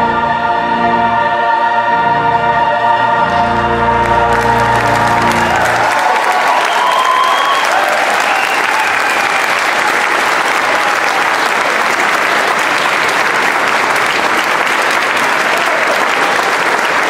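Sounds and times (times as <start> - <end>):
audience applauding: 4.0 - 17.0.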